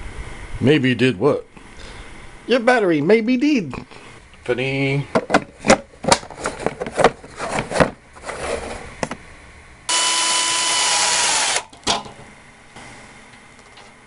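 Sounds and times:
drill whine boring metal: 0:09.9 - 0:11.7.

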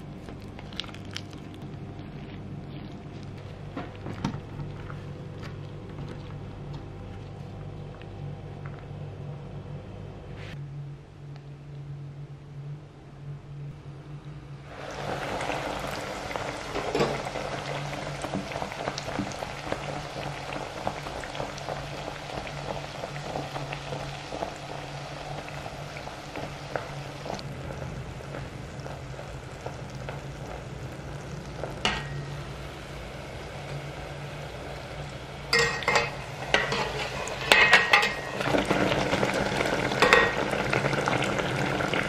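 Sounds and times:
food sizzling in frying oil: 0:14.7 - 0:42.0.

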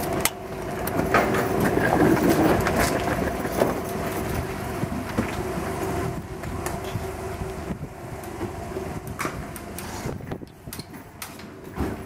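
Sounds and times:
suitcases knocking and rattling: 0:01.0 - 0:05.3.

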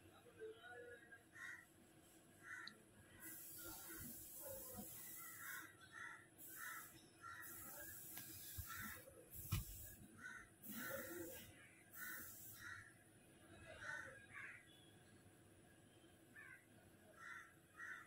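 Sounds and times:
crows cawing: 0:01.4 - 0:01.7, 0:02.4 - 0:02.7, 0:05.1 - 0:07.6, 0:08.6 - 0:09.0, 0:10.2 - 0:11.2, 0:12.0 - 0:12.9, 0:13.8 - 0:14.6, 0:16.4 - 0:16.6, 0:17.2 - 0:18.0.

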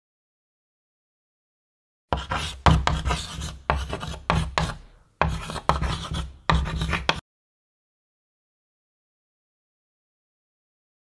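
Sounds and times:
chalk scratching on blackboard: 0:02.1 - 0:07.2.

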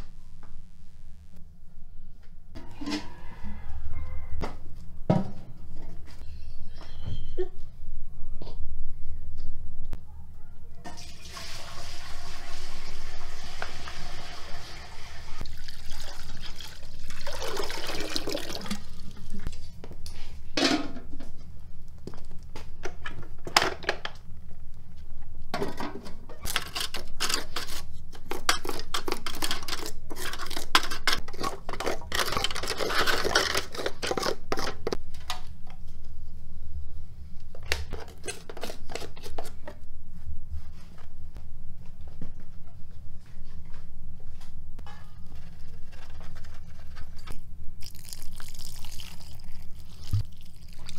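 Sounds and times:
metal clanks and scrapes: 0:02.6 - 0:03.5, 0:44.8 - 0:47.4
water pouring into metal pot: 0:10.9 - 0:19.2, 0:47.8 - 0:50.9.

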